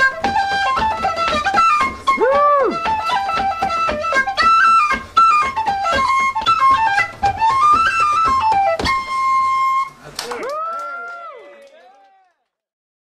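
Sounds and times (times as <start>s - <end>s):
frame drum beating: 0.0s - 9.1s
fast flute dance tune: 0.0s - 10.0s.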